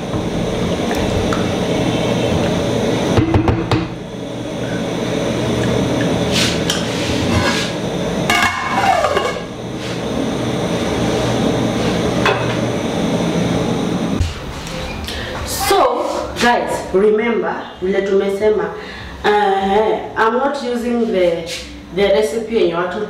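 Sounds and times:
metal lid clattering and scraping: 6.3s - 9.5s.

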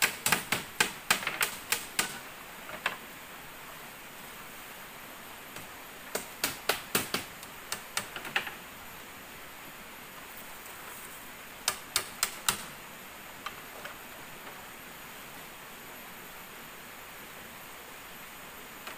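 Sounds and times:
knocks on bamboo slats: 0.0s - 3.0s, 5.6s - 8.6s, 11.6s - 12.7s.

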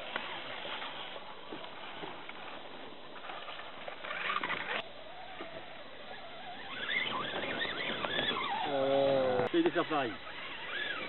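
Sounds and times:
small electric motor whining: 3.3s - 11.0s.

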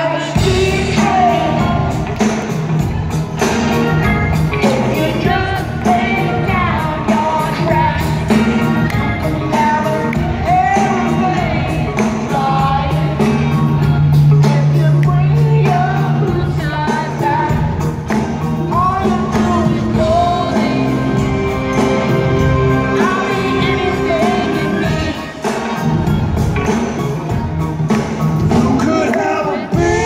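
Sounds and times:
person singing lead vocal: 0.0s - 2.6s, 3.4s - 26.0s, 28.4s - 30.0s
live rock band: 0.0s - 30.0s.

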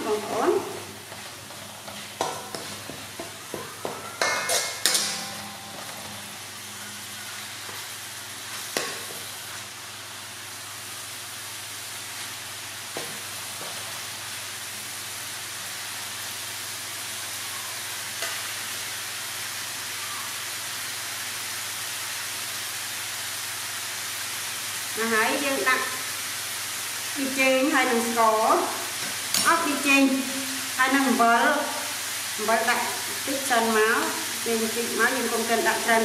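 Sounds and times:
paste sizzling in hot oil: 0.0s - 36.0s
metal spatula stirring: 1.1s - 6.4s.

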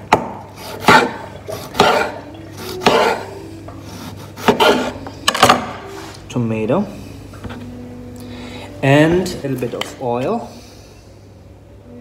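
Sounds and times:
knife slicing tomato on board: 0.2s - 3.3s, 3.9s - 5.0s.

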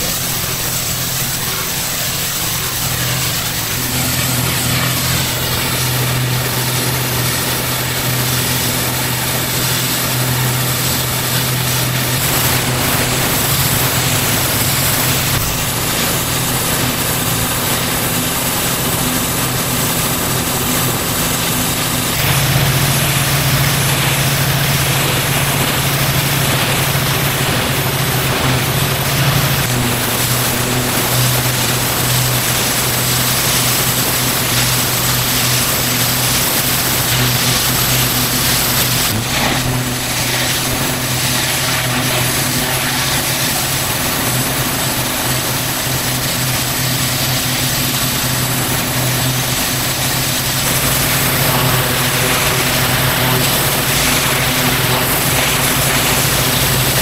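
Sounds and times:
pressure washer engine running: 0.0s - 57.0s
water jet hissing on paving: 0.0s - 57.0s.

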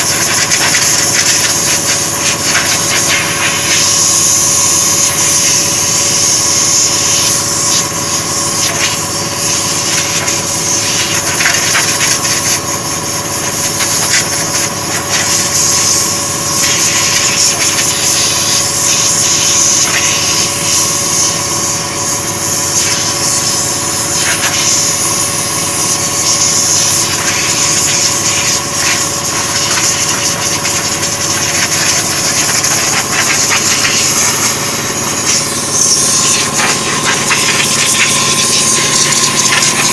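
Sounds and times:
machine motor humming: 18.3s - 39.9s.

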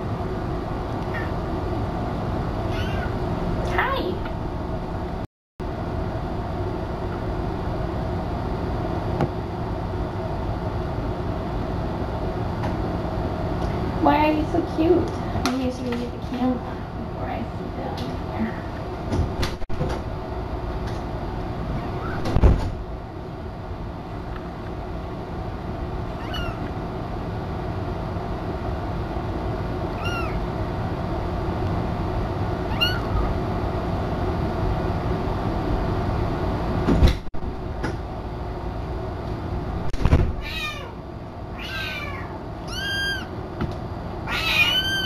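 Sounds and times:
kitten mewing: 1.1s - 1.4s, 2.7s - 3.2s, 26.2s - 26.7s, 30.0s - 30.4s, 32.7s - 33.3s, 40.4s - 43.3s, 44.3s - 45.0s.

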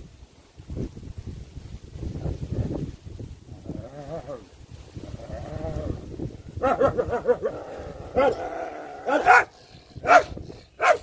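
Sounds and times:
dogs barking: 6.6s - 11.0s.

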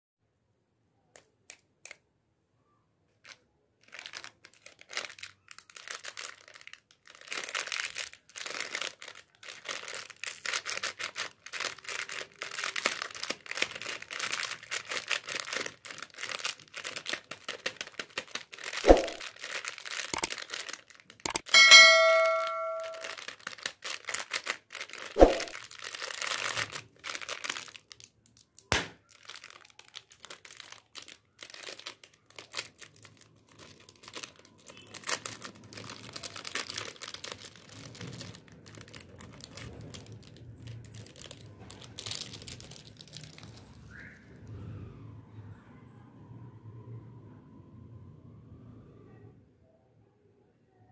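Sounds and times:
plastic wrappers crinkling: 3.2s - 44.1s
sharp clicks: 21.3s - 21.5s
ringing ding: 21.4s - 23.1s.

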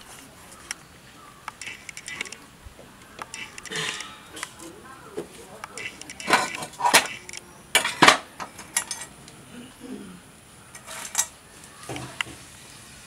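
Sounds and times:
metal tools clinking: 3.4s - 4.7s, 5.8s - 9.2s, 10.7s - 11.4s.

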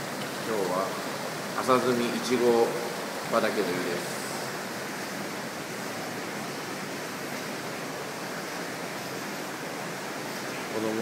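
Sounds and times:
churning running water: 0.0s - 11.0s.

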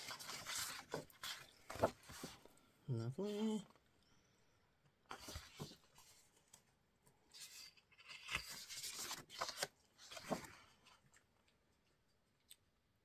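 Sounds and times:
paper sheets rustling: 0.0s - 2.5s, 5.1s - 6.6s, 7.3s - 11.0s.

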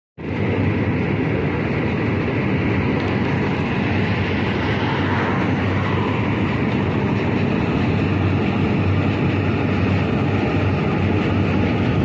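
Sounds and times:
train rumbling over bridge: 0.2s - 12.0s.

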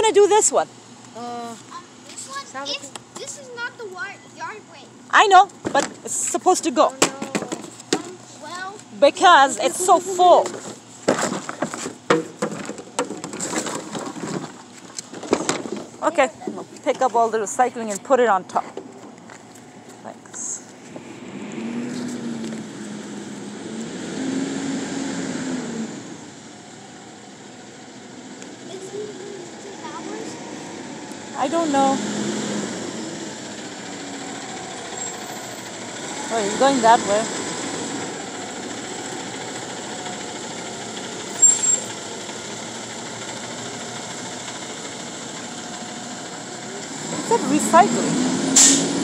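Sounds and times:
truck engine droning: 0.0s - 49.0s.

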